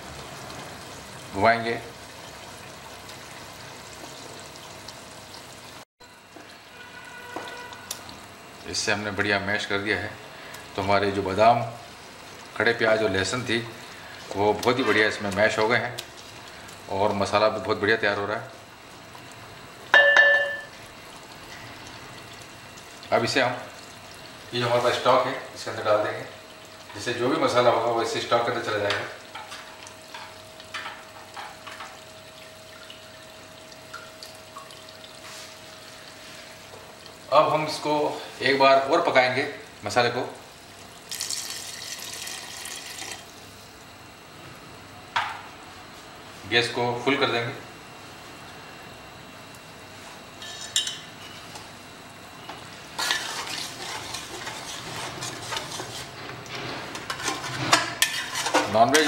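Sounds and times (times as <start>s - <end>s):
liquid trickling and splashing: 0.0s - 8.7s, 13.7s - 17.0s, 20.5s - 25.2s, 29.6s - 37.3s, 40.6s - 43.4s
sauce sizzling and bubbling in pot: 0.0s - 46.4s, 47.6s - 59.0s
faint steady hum: 0.0s - 59.0s
spoon stirring and scraping pot: 53.0s - 59.0s.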